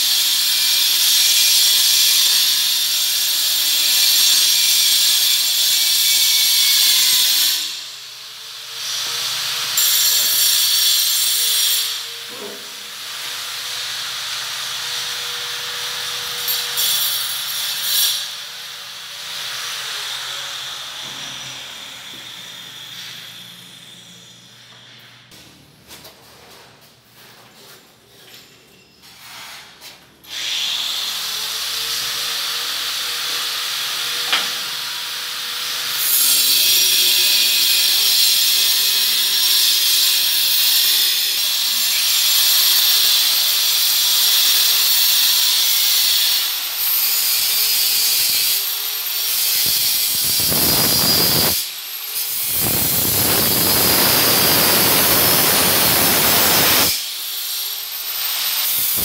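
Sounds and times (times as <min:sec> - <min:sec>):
angle grinder running: 0:35.9 - 0:59.0.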